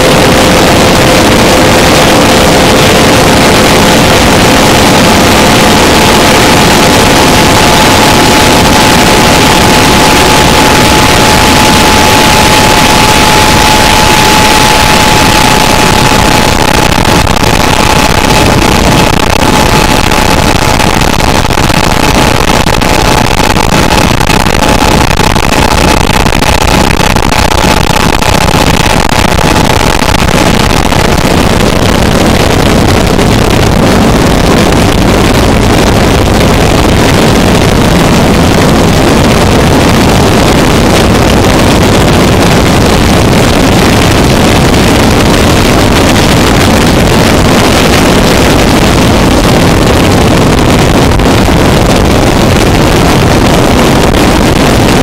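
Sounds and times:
thin steady tone: 0:00.0 - 0:21.0
harsh distorted noise music: 0:00.0 - 0:55.0.

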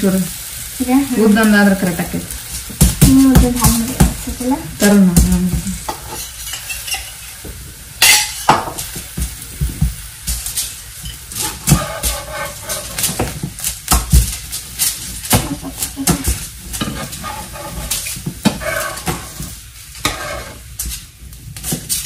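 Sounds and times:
flatbread sizzling: 0:00.0 - 0:22.0
metal spatula scraping pan: 0:05.8 - 0:07.3, 0:10.5 - 0:21.0.

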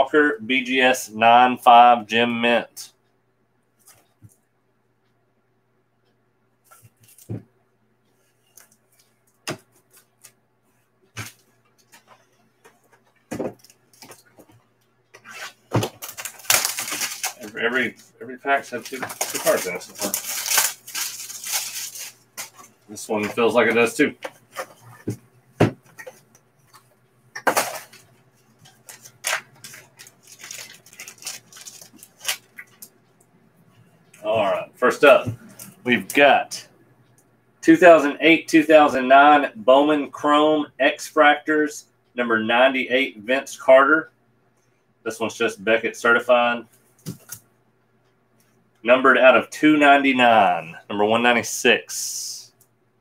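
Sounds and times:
wrapper rustling: 0:15.4 - 0:23.5, 0:28.6 - 0:32.8.

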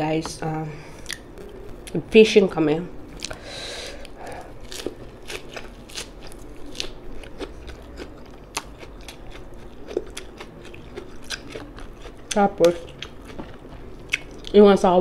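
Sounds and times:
person chewing crunchy food: 0:03.1 - 0:14.6.

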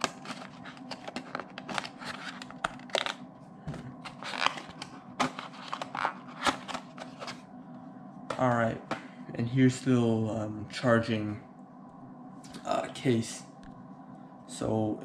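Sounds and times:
packaging rustling: 0:00.0 - 0:03.2, 0:03.8 - 0:07.4.

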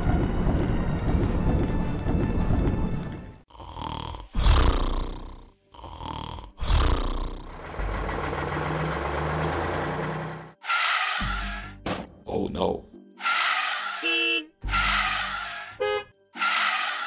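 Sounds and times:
low engine drone: 0:07.2 - 0:10.6.

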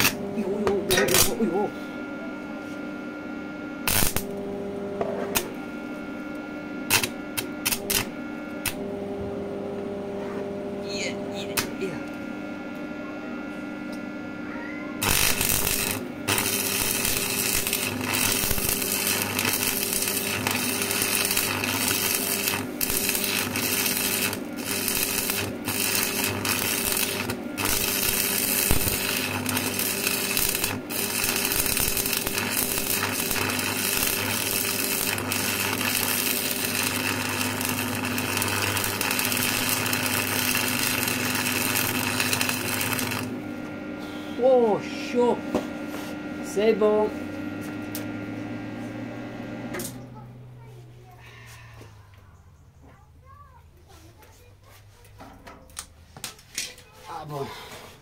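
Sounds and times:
welding arc crackling: 0:00.0 - 0:00.2, 0:00.9 - 0:01.5, 0:03.8 - 0:04.4, 0:06.3 - 0:08.8, 0:15.0 - 0:43.4
steady low hum: 0:00.0 - 0:52.9.

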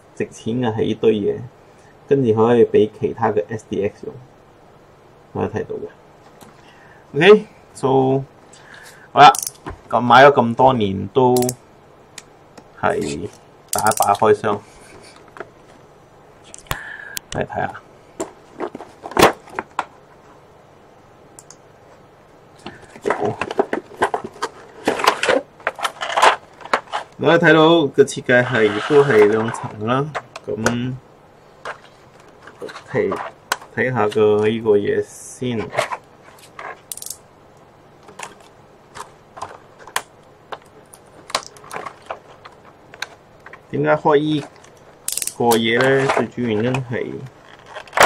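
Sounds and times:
plastic trays clicking and crackling: 0:38.0 - 0:43.6.

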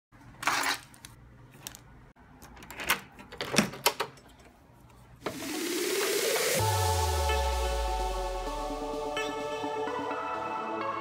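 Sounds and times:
electronic music with rising whine: 0:05.4 - 0:11.0.

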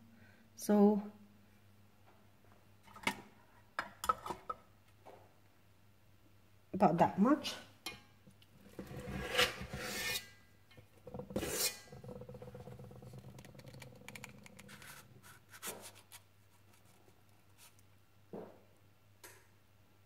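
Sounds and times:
metal scoop scraping mixing bowl: 0:08.6 - 0:15.8.

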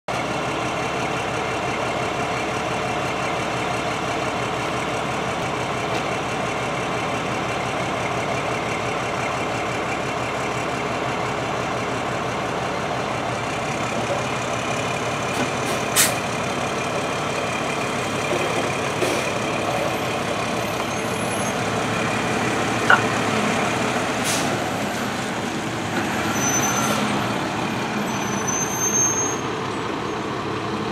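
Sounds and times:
diesel fire engine idling: 0:00.1 - 0:30.9
ambulance driving past: 0:09.7 - 0:28.4
brief high squeals: 0:28.0 - 0:29.5.

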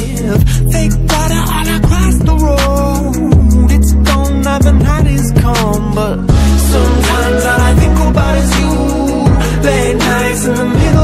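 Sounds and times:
person singing: 0:00.0 - 0:11.0
song with heavy bass and beat: 0:00.0 - 0:11.0.

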